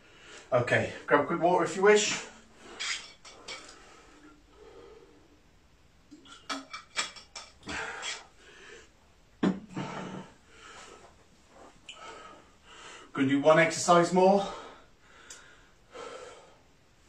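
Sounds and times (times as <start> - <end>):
water bottle rattling: 6.2 - 7.8
hard breathing: 7.6 - 13.1, 14.4 - 16.8
bottle knocked down on table: 9.4 - 9.7.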